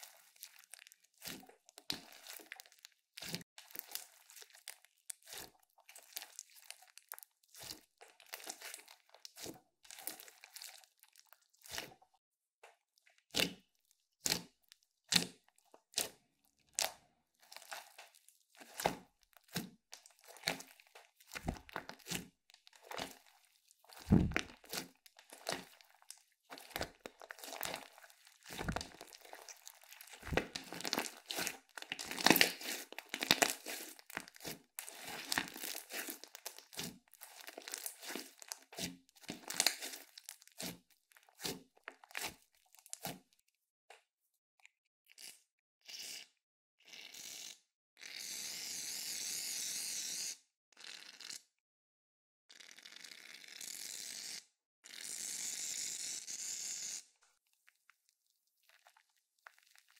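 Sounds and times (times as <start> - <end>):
slime crackling and popping: 0.0 - 12.0, 16.8 - 43.3.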